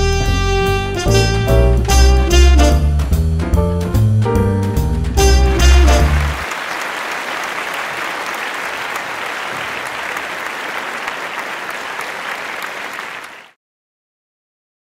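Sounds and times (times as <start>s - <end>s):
jazzy show tune: 0.0s - 13.4s
audience applauding: 5.3s - 13.6s.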